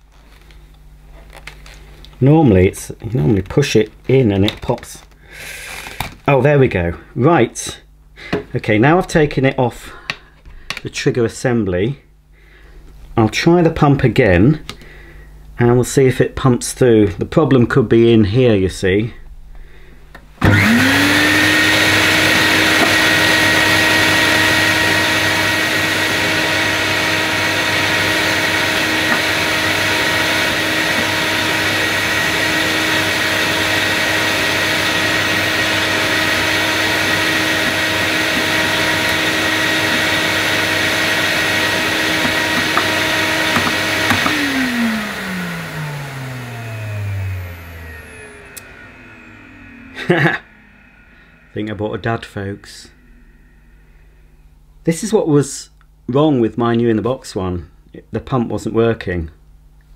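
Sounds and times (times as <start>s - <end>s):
vacuum cleaner motor whine: 20.4s - 54.9s.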